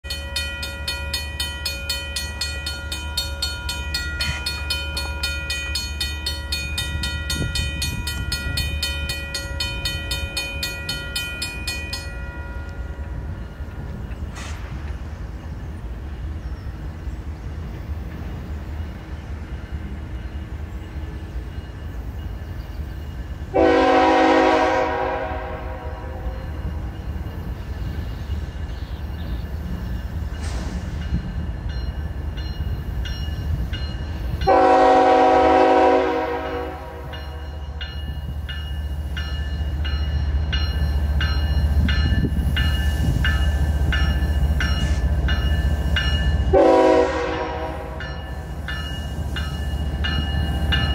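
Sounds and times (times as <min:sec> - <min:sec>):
crossing bell ringing rapidly: 0:00.0 - 0:14.1, 0:26.4 - 0:34.9, 0:36.4 - 0:46.8, 0:47.6 - 0:50.9
train horn blast: 0:23.5 - 0:26.6, 0:34.4 - 0:37.5, 0:46.5 - 0:48.2.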